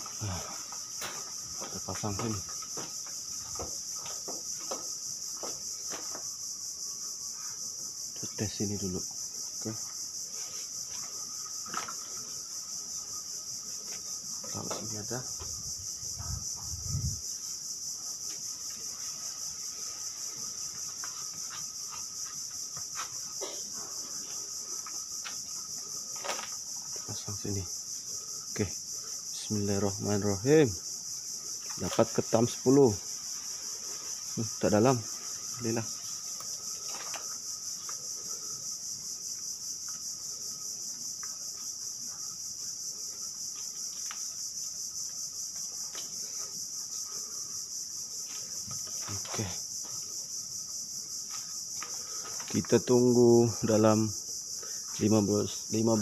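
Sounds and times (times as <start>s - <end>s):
night insects chirping: 0.0s - 56.0s.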